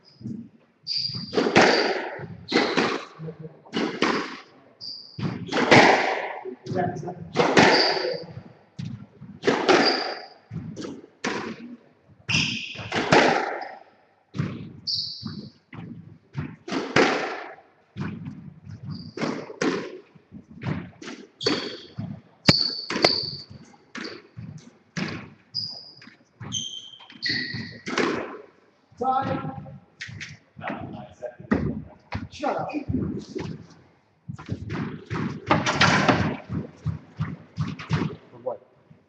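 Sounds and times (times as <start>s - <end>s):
shoes squeaking on wooden floor: 0.0s - 3.3s, 3.9s - 5.6s, 6.8s - 13.7s, 14.4s - 16.7s, 18.0s - 38.3s
squash ball cracking off walls: 1.2s - 4.5s, 5.2s - 11.7s, 12.3s - 28.6s, 34.3s - 38.3s.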